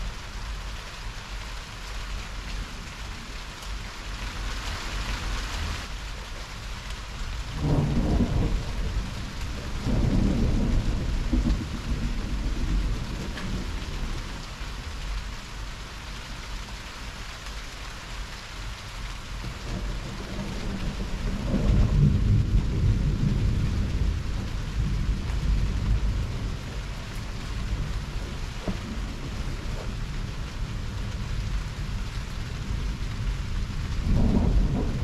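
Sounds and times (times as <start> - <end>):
rain hissing: 0.0 - 35.0
rolling thunder: 7.5 - 14.6, 19.4 - 35.0.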